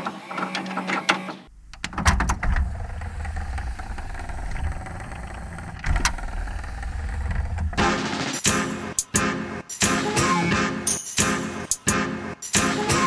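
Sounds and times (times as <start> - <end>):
steady low rumble: 1.5 - 7.8.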